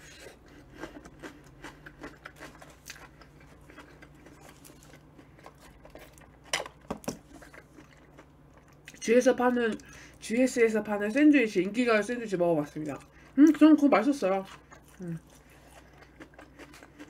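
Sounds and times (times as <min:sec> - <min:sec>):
person chewing sandwich: 0:00.0 - 0:09.0, 0:14.4 - 0:17.0.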